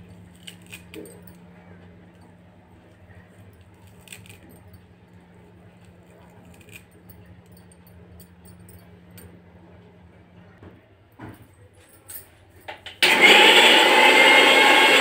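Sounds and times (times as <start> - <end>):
bangles clinking: 3.3 - 9.4.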